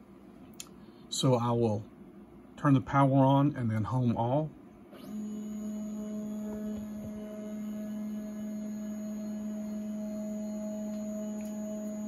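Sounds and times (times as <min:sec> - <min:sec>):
stepper motors whining: 0:05.0 - 0:12.0.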